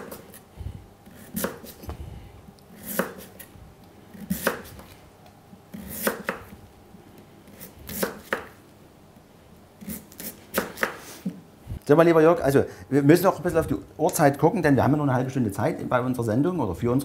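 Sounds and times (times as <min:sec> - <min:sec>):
knife slicing vegetable: 0:00.0 - 0:00.4, 0:01.0 - 0:01.9, 0:02.7 - 0:03.5, 0:04.1 - 0:05.0, 0:05.7 - 0:06.6, 0:07.4 - 0:08.6, 0:09.8 - 0:11.4.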